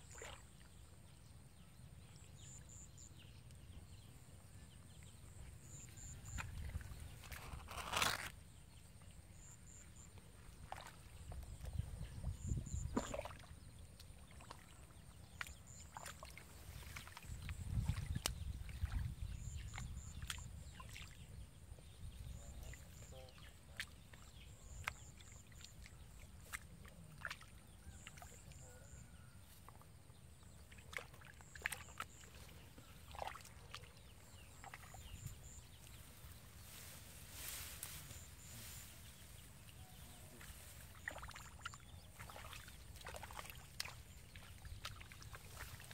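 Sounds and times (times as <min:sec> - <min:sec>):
water sloshing and splashing: 0:10.4 - 0:11.8, 0:12.7 - 0:21.4, 0:23.0 - 0:28.6, 0:30.4 - 0:36.6, 0:38.1 - 0:45.9.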